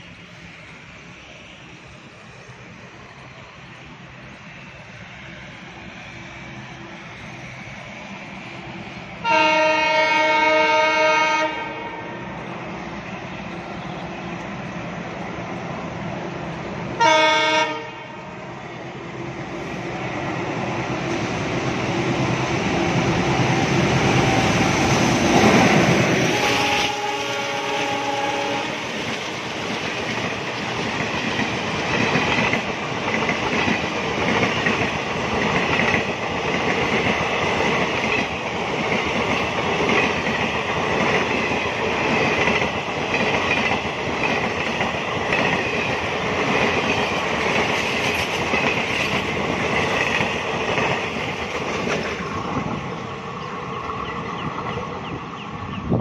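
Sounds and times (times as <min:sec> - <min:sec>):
locomotive horn: 0:09.2 - 0:12.2, 0:17.0 - 0:18.4, 0:26.2 - 0:29.0
train wheels clacking over rail joints: 0:23.3 - 0:52.8.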